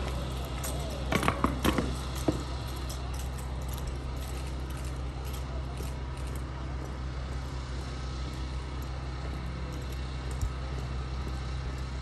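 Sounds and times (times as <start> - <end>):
boots striking concrete: 0.0 - 2.8
low background rumble: 0.0 - 12.0.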